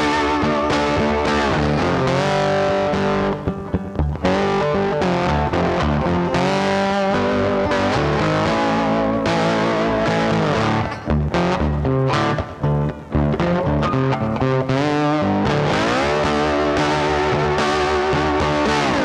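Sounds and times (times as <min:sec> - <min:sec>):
guitar background music: 0:00.0 - 0:19.0.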